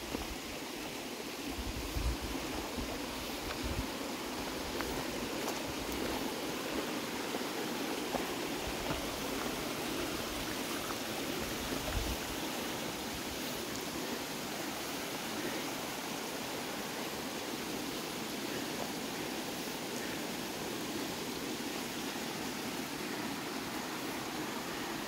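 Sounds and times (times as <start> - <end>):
creek water rushing: 0.0 - 25.0.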